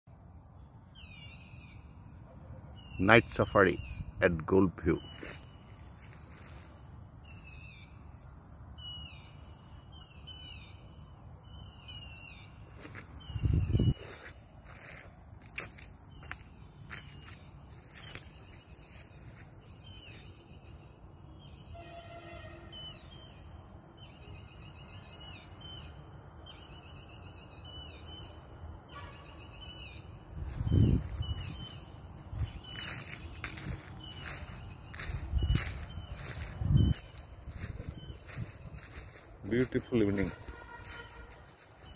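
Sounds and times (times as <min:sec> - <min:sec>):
crickets trilling: 0:00.1 - 0:41.9
insect chirping calls: 0:00.1 - 0:41.9.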